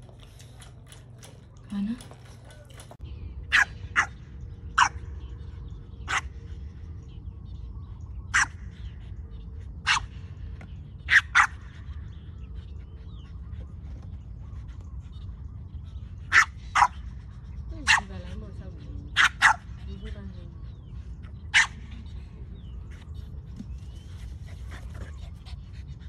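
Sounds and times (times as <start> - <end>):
puppy barking: 3.5 - 4.2, 8.3 - 8.6, 9.9 - 10.1, 11.1 - 11.6, 16.3 - 17.0, 19.2 - 19.7, 21.5 - 21.8.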